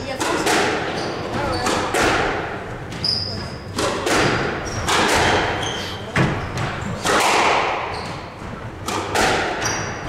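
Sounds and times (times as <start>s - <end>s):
shoes squeaking on wooden floor: 0.8s - 2.0s, 2.7s - 7.0s, 7.8s - 8.8s, 9.6s - 10.0s
squash ball smacks: 3.8s - 5.6s, 6.2s - 7.9s, 8.8s - 10.0s.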